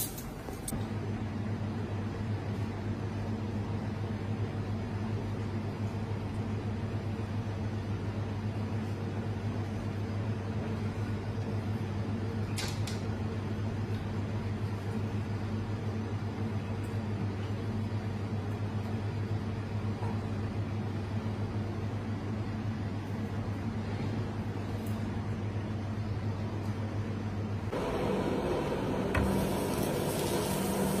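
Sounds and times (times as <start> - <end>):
kitchen machine hum: 14.6 - 31.0.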